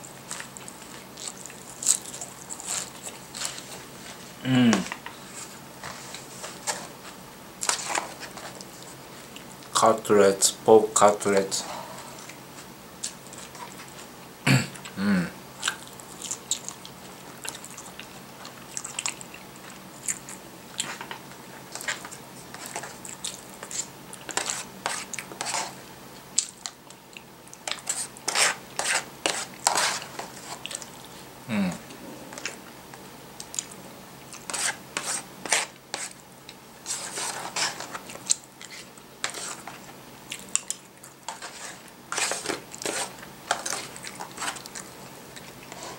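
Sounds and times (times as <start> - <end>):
chewing crunchy fried food: 0.1 - 4.2, 12.2 - 14.2, 14.8 - 31.3, 31.9 - 45.9.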